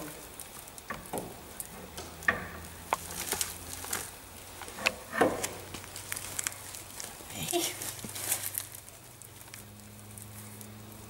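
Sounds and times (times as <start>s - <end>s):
metal clicks knocks and scraping: 4.6s - 5.6s.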